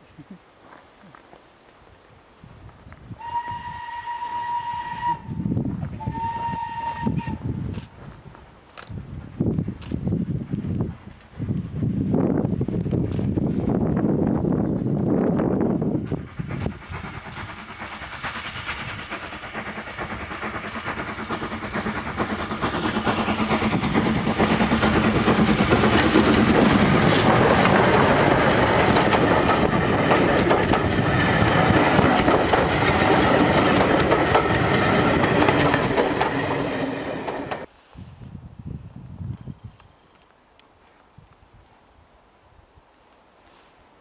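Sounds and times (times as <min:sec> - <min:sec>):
train passing: 0:03.2 - 0:37.8.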